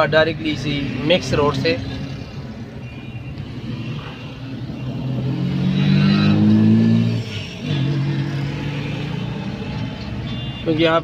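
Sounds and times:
car engine accelerating: 5.0 - 9.9.

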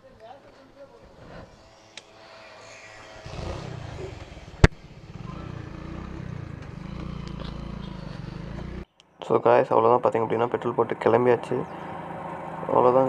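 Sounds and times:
motorcycle engine revving: 1.2 - 8.9, 10.7 - 13.0.

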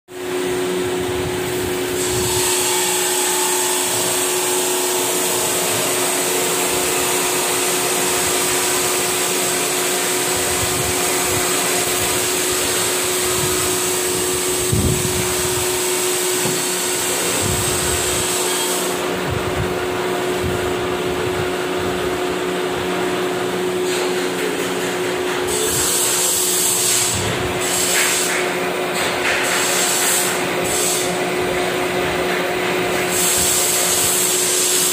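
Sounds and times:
high whine: 0.1 - 24.2
metal lathe humming: 0.2 - 24.2.

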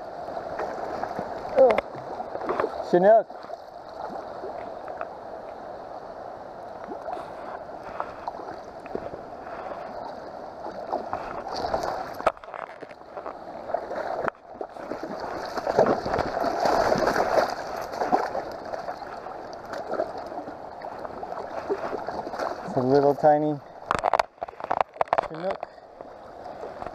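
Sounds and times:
river water over rocks: 0.0 - 26.9
fish splashing: 7.0 - 22.8.

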